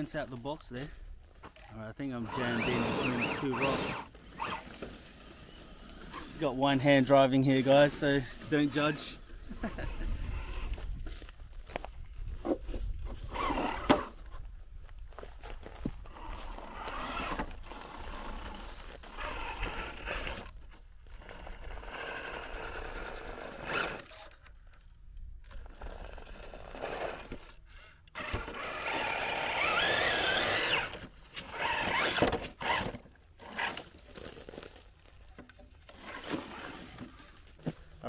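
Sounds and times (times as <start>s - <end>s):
electric motor whining: 1.5s - 6.4s, 13.1s - 14.2s, 16.0s - 24.4s, 25.6s - 33.9s.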